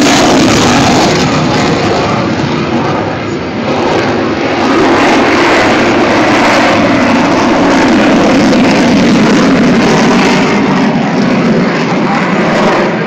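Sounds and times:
jet engine passing overhead: 0.0 - 13.0.

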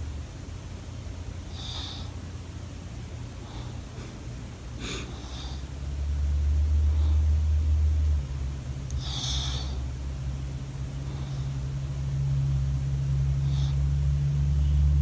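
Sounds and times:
low rumble: 0.0 - 15.0
dog snorting: 4.8 - 5.6.

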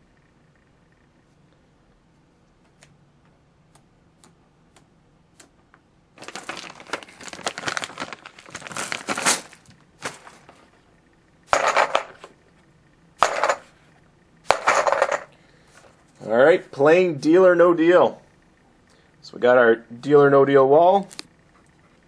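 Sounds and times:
crinkling handling noise: 6.2 - 12.4.

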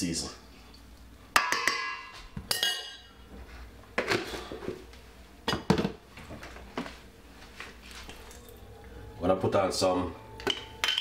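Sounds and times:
metal utensils clinking: 2.5 - 3.1, 10.4 - 11.0.

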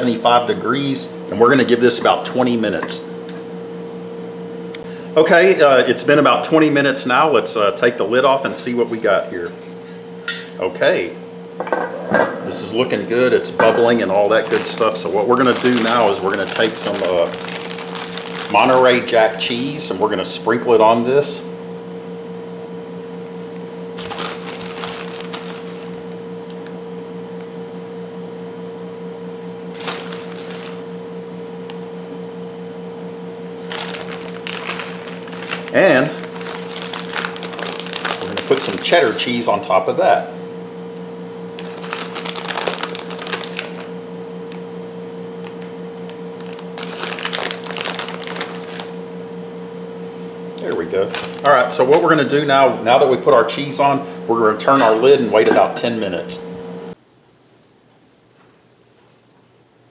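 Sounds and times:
steady low hum: 0.0 - 59.9
plastic bag rustling and crinkling: 12.6 - 19.6, 24.0 - 26.0, 29.7 - 30.8, 33.5 - 39.6, 41.6 - 44.6, 45.3 - 49.0, 51.0 - 52.1.

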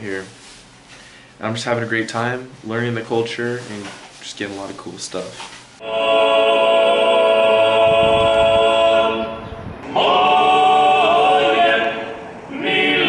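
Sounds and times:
choir singing held chords: 5.8 - 13.0.

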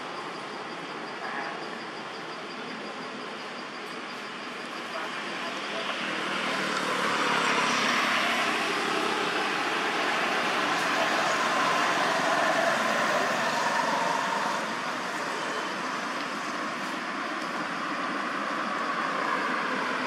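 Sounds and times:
distant road traffic rushing: 0.0 - 20.0.

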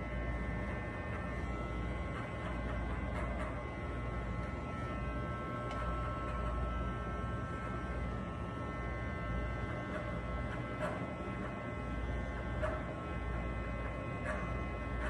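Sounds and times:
electric hair clipper buzzing: 0.0 - 15.0.

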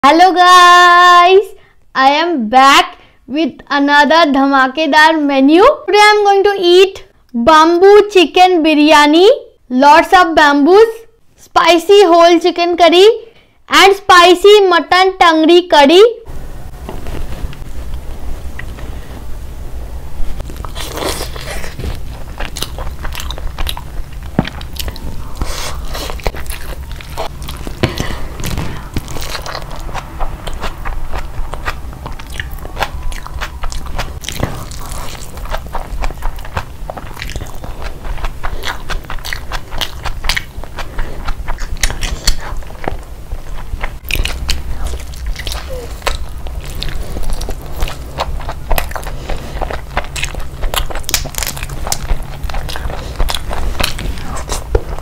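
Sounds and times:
low steady hum: 0.0 - 55.0
close chewing and biting: 20.4 - 55.0.

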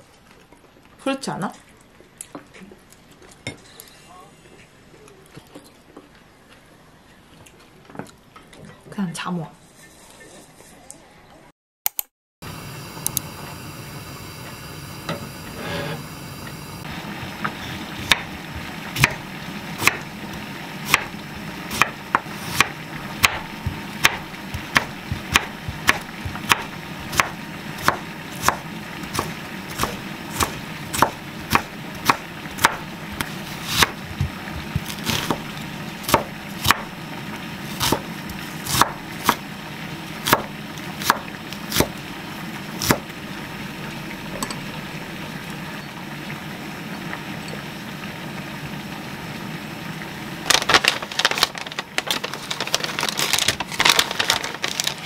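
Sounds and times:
knife chopping on wooden board: 21.7 - 35.5, 36.1 - 36.9, 37.8 - 38.0, 38.6 - 39.4, 40.2 - 41.9.

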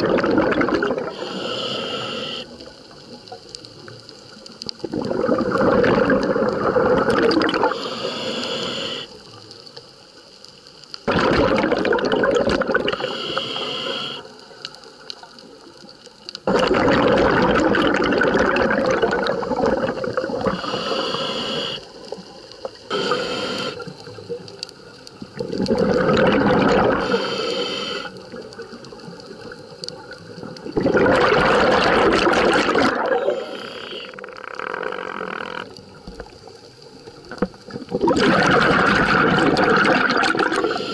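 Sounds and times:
exhaled bubbles rushing: 0.0 - 1.3, 4.8 - 7.8, 11.1 - 13.1, 16.4 - 20.8, 25.2 - 27.2, 28.4 - 35.6, 37.3 - 40.9
diver breathing through regulator: 1.1 - 2.6, 7.6 - 9.2, 12.9 - 14.4, 20.4 - 22.0, 22.9 - 24.0, 26.6 - 28.2, 32.6 - 35.6, 40.3 - 40.9.

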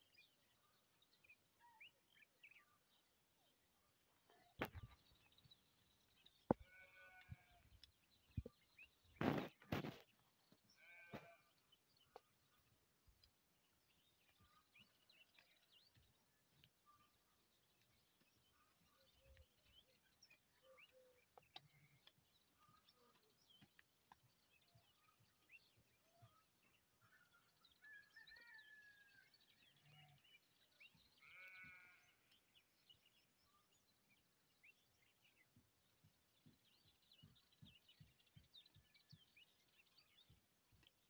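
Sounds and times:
animal bleating: 6.5 - 7.6, 10.7 - 11.5, 31.2 - 32.3.

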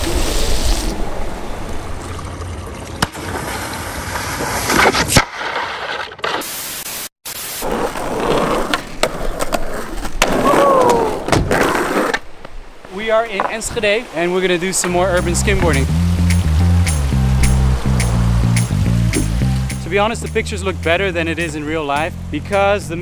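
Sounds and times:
board scraping over wet pavement: 3.0 - 6.7, 7.6 - 20.0
skateboard wheels rolling: 3.0 - 6.7, 7.6 - 15.8.

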